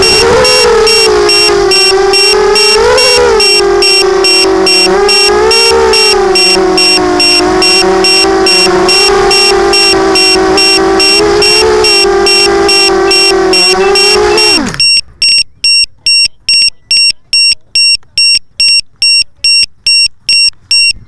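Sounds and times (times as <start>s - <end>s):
drone motors whirring: 0.0s - 15.2s
high-pitched beeps: 0.0s - 21.0s.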